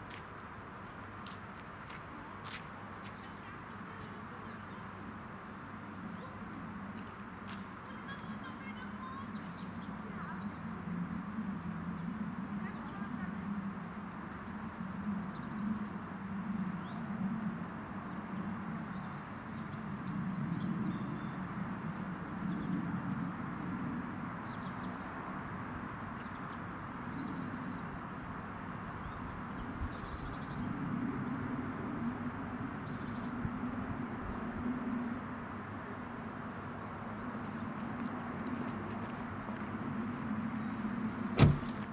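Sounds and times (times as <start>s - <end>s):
small birds chirping: 1.2s - 17.2s, 32.8s - 41.9s.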